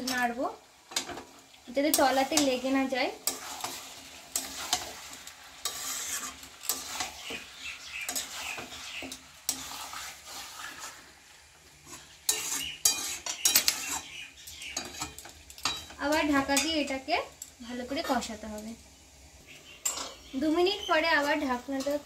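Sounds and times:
food sizzling in a pan: 0:00.0 - 0:22.0
spatula scraping a metal pan: 0:01.9 - 0:11.1, 0:11.8 - 0:16.8
spatula clinking against pan: 0:12.3 - 0:16.0.

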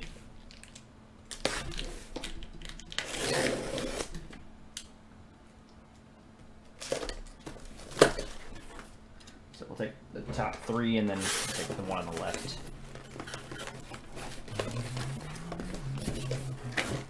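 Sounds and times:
cardboard boxes scraping: 0:03.1 - 0:04.2, 0:11.1 - 0:17.0.

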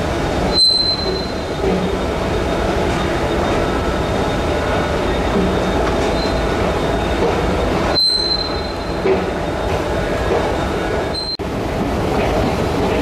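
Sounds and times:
train running along track: 0:00.0 - 0:13.0
high wheel squeal: 0:00.5 - 0:01.6, 0:03.0 - 0:07.2, 0:07.9 - 0:09.0.

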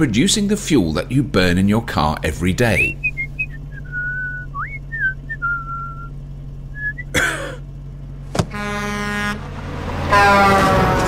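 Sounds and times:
idling car engine hum: 0:00.0 - 0:11.0
person whistling a tune: 0:02.9 - 0:06.1, 0:06.8 - 0:07.1.

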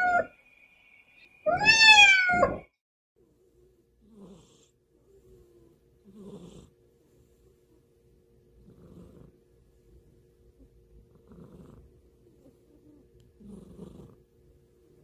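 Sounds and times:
cat meowing: 0:00.0 - 0:00.3, 0:01.4 - 0:02.7
cat snoring softly: 0:03.3 - 0:07.9, 0:08.5 - 0:14.4.

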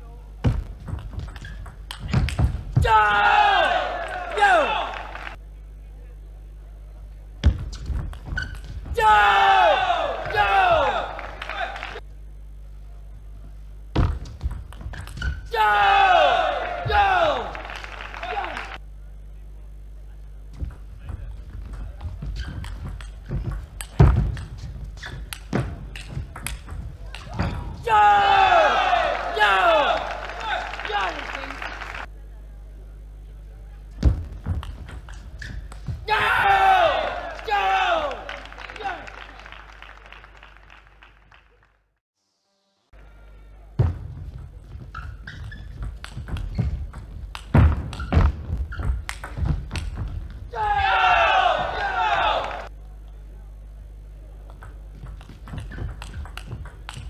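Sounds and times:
shoes squeaking on floor: 0:07.7 - 0:08.9, 0:22.0 - 0:23.8, 0:24.5 - 0:25.5, 0:44.6 - 0:46.9
footsteps on court floor: 0:34.0 - 0:36.4.

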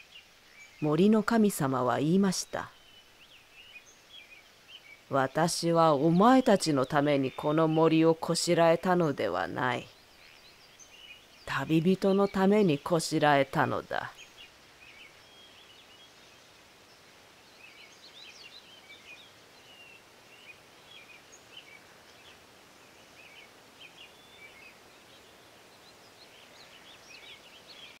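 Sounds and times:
small birds chirping: 0:00.0 - 0:28.0
soft outdoor hiss: 0:00.0 - 0:28.0.

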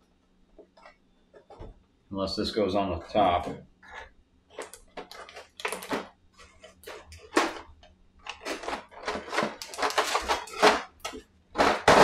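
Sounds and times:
plastic pieces tapping and clicking: 0:06.8 - 0:12.0.

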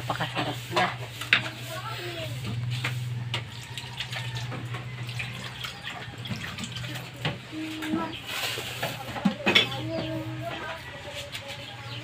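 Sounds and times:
running water: 0:00.0 - 0:07.8.

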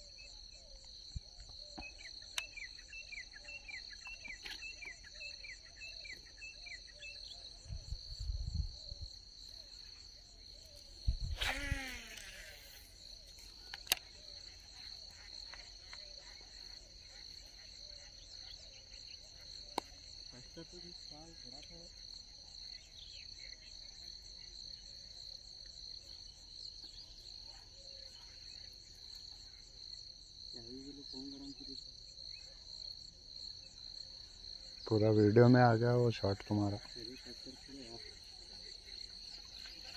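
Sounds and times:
insects chirring: 0:00.0 - 0:39.9
sharp clicks: 0:13.6 - 0:14.1.

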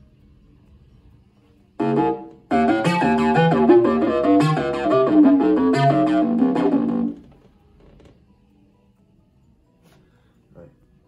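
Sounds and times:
keyboard chords and melody: 0:01.8 - 0:07.2.

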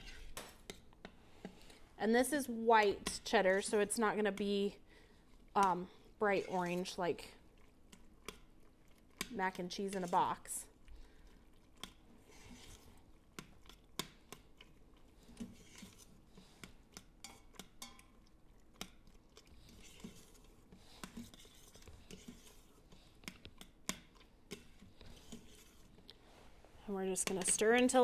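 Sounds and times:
metal utensil scraping pot: 0:00.0 - 0:00.8, 0:05.6 - 0:07.4, 0:09.0 - 0:10.6, 0:11.8 - 0:13.1, 0:15.2 - 0:18.2, 0:19.6 - 0:26.0, 0:26.9 - 0:28.0
soft wet stirring: 0:00.0 - 0:28.0.

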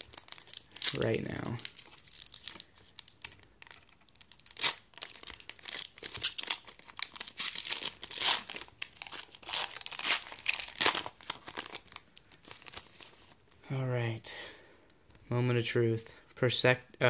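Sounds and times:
foil wrapper tearing and crinkling: 0:00.0 - 0:13.2.

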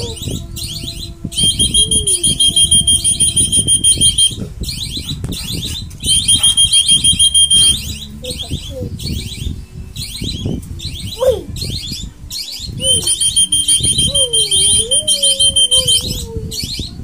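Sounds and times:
trilling whistle blasts: 0:00.7 - 0:04.4, 0:06.0 - 0:08.0, 0:12.8 - 0:16.2
fast high chirping: 0:01.3 - 0:08.1, 0:12.5 - 0:16.2.

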